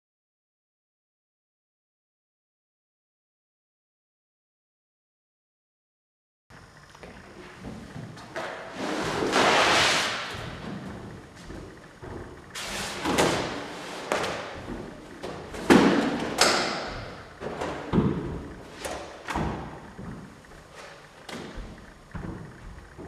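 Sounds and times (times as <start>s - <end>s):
thumps and knocks: 10.3s - 20.4s, 21.3s - 23.0s.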